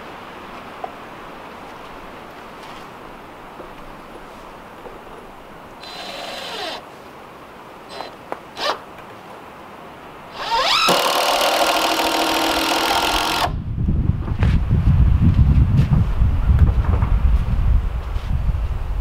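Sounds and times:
cordless drill driving screw: 5.8 - 6.8, 7.9 - 8.8, 10.3 - 13.5.

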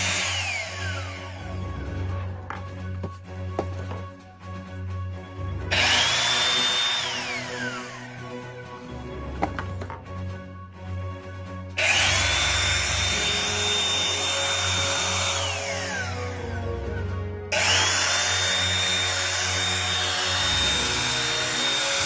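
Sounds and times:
electric air pump whining: 0.0 - 4.1, 5.7 - 8.6, 11.8 - 22.0.

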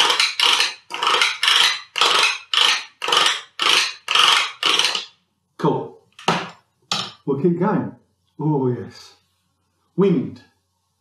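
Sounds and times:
stick rasping over plastic ridges: 0.0 - 5.2.

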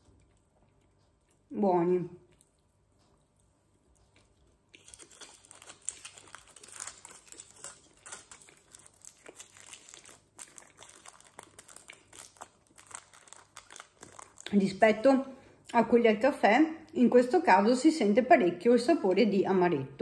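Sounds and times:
sweet wrapper crinkling: 4.0 - 15.1.

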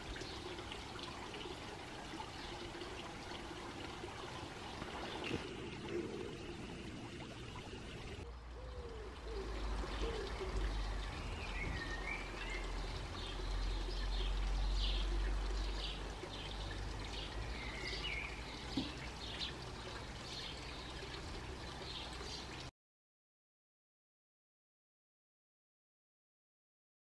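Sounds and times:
small birds chirping: 7.4 - 22.6.

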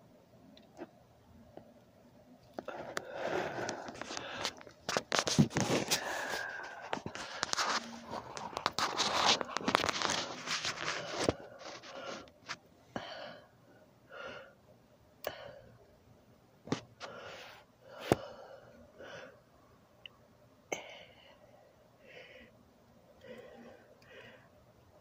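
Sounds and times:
person breathing: 2.6 - 12.3, 12.9 - 14.6, 15.2 - 15.8, 17.0 - 19.4, 20.7 - 22.6, 23.2 - 24.6
handling noise rustling and scraping: 2.6 - 12.6.

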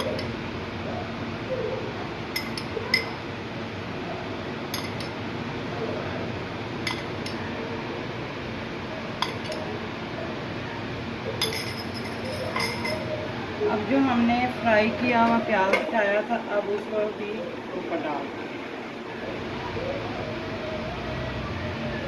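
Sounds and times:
metal spoon clinking on dishes: 2.4 - 3.2, 4.7 - 5.2, 6.8 - 7.4, 9.2 - 9.7, 11.4 - 13.2.

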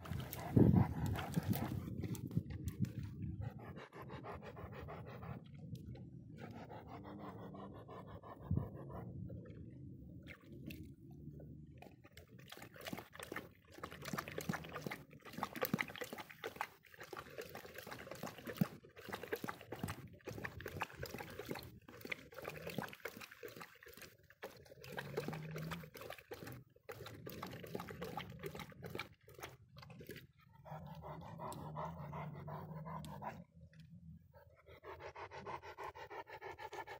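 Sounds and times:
small water splashes: 0.0 - 2.4, 10.2 - 10.9, 11.8 - 30.4
dog panting: 0.0 - 9.2, 30.6 - 33.6, 34.3 - 36.9
dog lapping water: 0.0 - 36.9.

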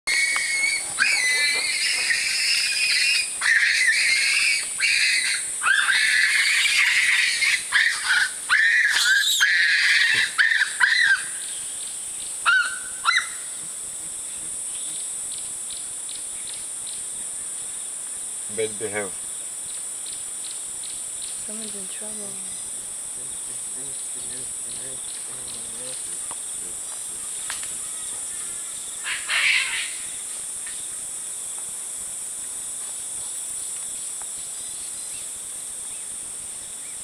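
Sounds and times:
baboon screaming: 0.1 - 11.4, 12.4 - 13.4, 29.0 - 30.0
insect drone: 0.1 - 37.0.

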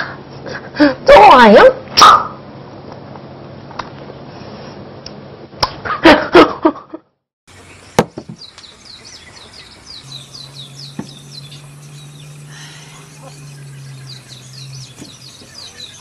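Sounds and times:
small bird chirping: 7.5 - 16.0.

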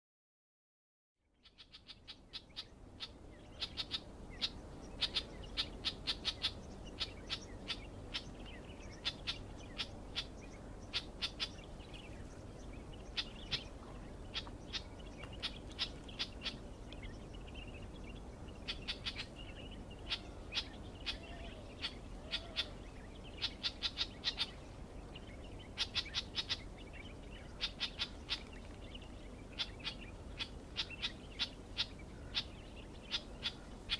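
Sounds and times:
reed warbler calling: 1.2 - 33.9.

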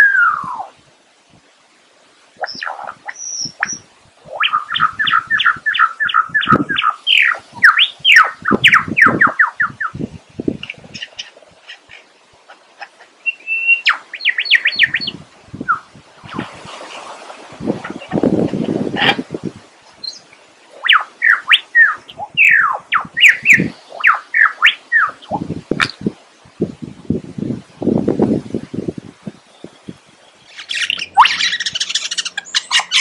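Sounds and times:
lyrebird whistling song: 0.0 - 0.7, 2.4 - 10.0, 13.2 - 16.4, 20.0 - 25.4, 29.4 - 33.0
rustling hiss: 0.0 - 33.0.

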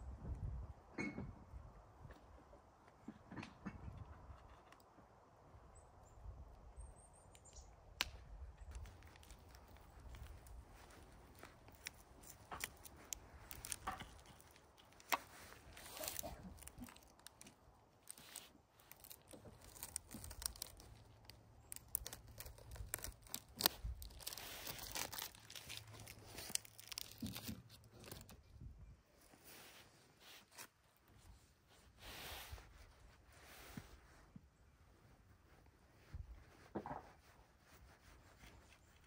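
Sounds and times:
plastic wrapping crinkling and tearing: 8.6 - 28.5, 30.2 - 31.5.

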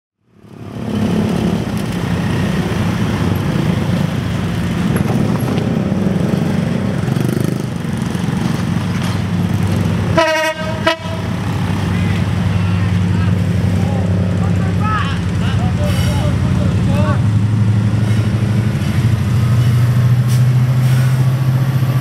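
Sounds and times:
locomotive engine rumbling: 0.3 - 22.0
train air horn blast: 10.1 - 11.3.

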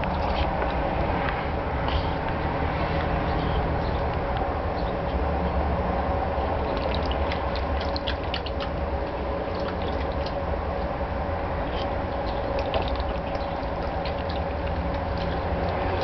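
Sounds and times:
steady low hum: 0.0 - 16.0
dog splashing in water: 6.5 - 10.7, 11.7 - 16.0.

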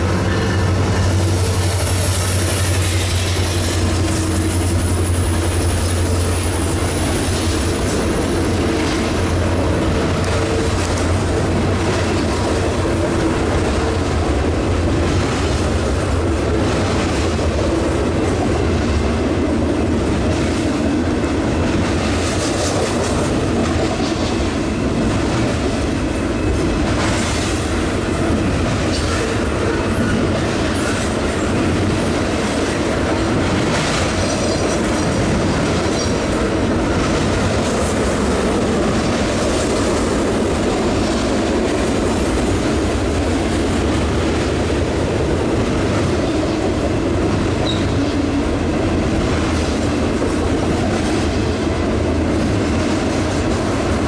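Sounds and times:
freight train wheels rumbling: 0.0 - 54.0
high wheel squeal: 47.6 - 48.2.

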